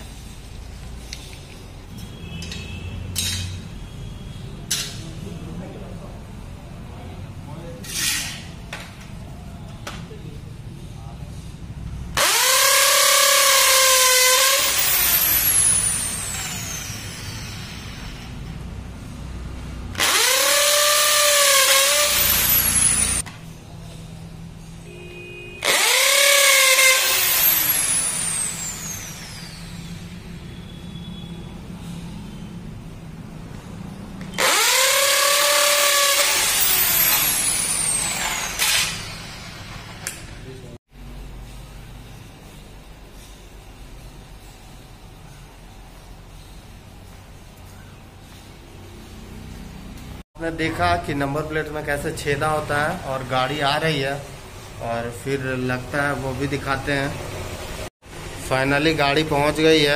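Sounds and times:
electric drill whining: 12.2 - 18.5, 20.0 - 23.2, 25.6 - 30.2, 34.4 - 40.2.

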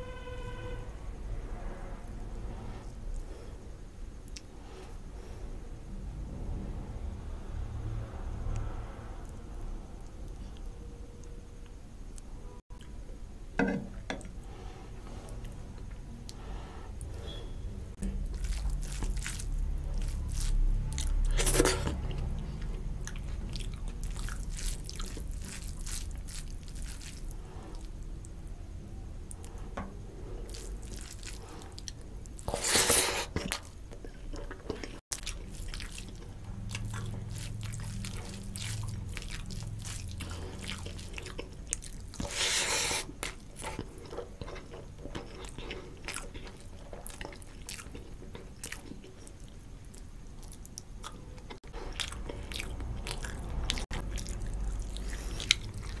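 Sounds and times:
person chewing food: 14.2 - 28.5, 29.3 - 56.0
wet squishing of rice by hand: 16.3 - 28.6, 29.3 - 50.8, 51.5 - 56.0.

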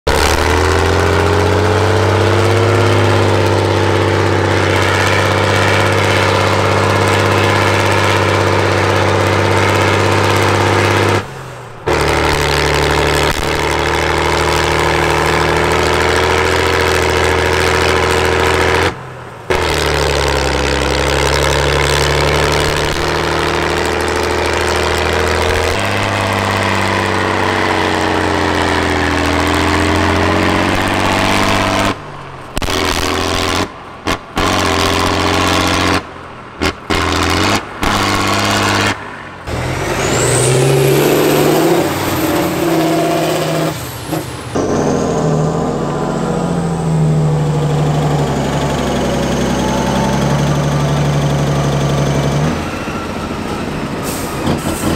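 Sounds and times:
diesel truck engine under load: 0.0 - 54.9.

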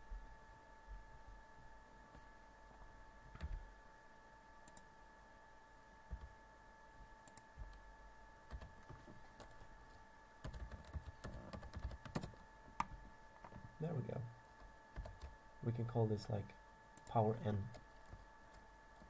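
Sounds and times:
faint steady hum: 0.0 - 19.0
keyboard typing: 7.2 - 7.8, 8.5 - 13.6, 14.6 - 15.4.

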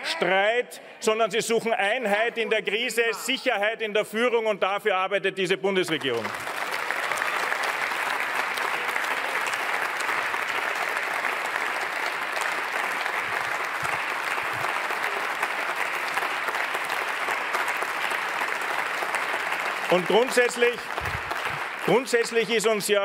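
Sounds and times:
crowd applauding: 5.9 - 23.0.

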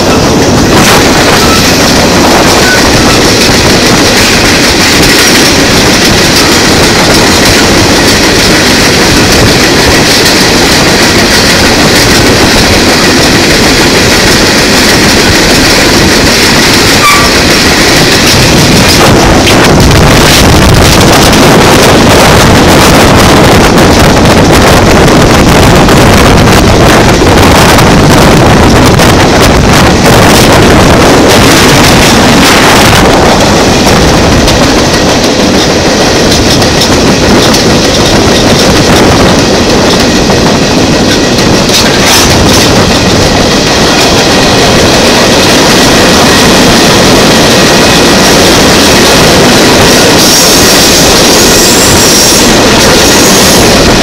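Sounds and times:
train wheels clattering on rails: 0.0 - 54.0
wind buffeting microphone: 0.0 - 54.0.

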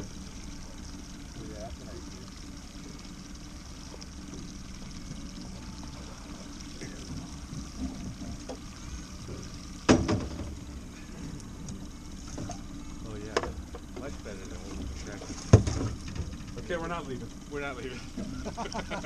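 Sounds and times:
boat motor humming: 0.0 - 19.0
water splashing and trickling: 0.0 - 19.0.

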